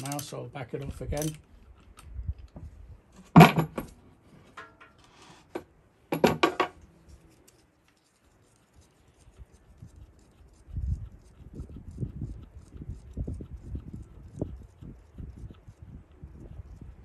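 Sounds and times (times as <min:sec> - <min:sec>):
steel tools clinking on metal: 0:00.0 - 0:01.4.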